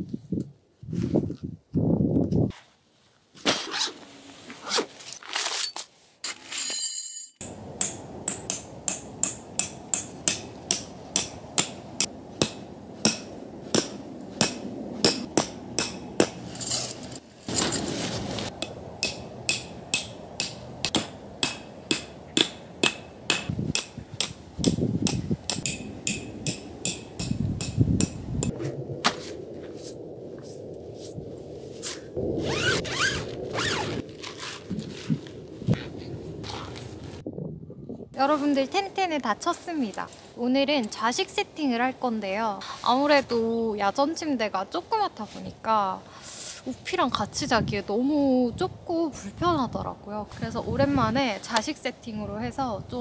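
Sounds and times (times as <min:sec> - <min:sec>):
gear rustling: 0:16.5 - 0:18.5.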